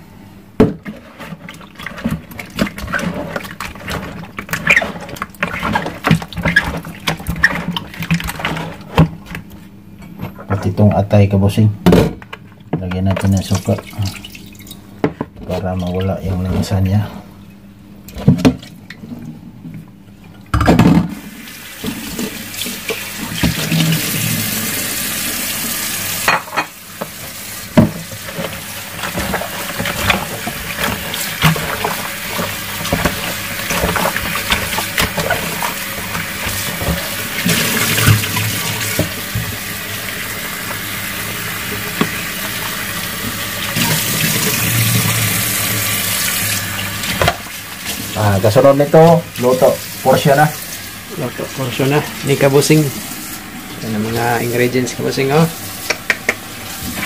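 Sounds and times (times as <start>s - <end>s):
clatter of food being rinsed: 0.6s - 10.7s, 18.1s - 53.1s, 53.7s - 57.0s
tap water running into sink: 20.9s - 57.0s.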